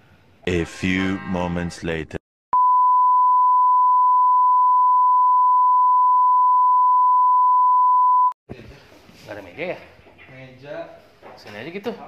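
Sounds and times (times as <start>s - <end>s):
steady test tone beep: 2.6s - 8.4s.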